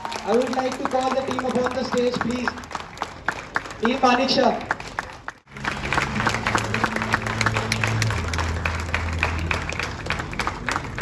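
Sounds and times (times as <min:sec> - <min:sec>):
audience applauding: 0:00.0 - 0:11.0
low sustained background music: 0:05.5 - 0:11.0.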